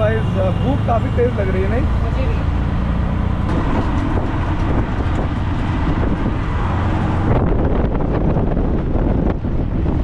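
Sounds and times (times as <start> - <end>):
small engine rumbling: 0.0 - 10.0
wind buffeting the microphone: 3.4 - 10.0.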